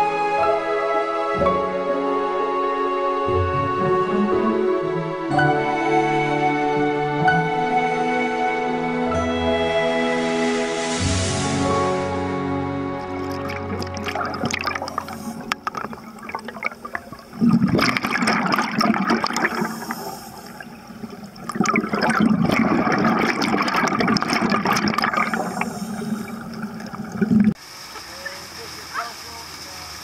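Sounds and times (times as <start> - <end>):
underwater bubbling rushes: 12.9 - 27.6.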